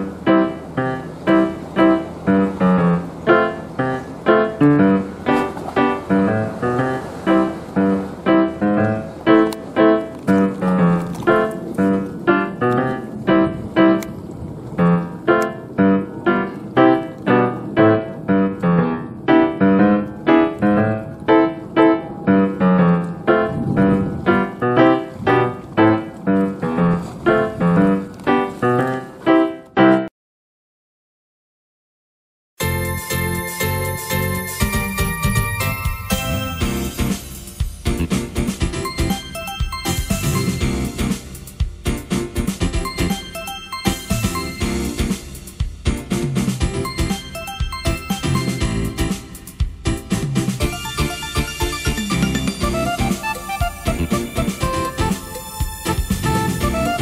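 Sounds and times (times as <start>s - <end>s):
piano music: 0.0s - 30.1s, 32.6s - 57.0s.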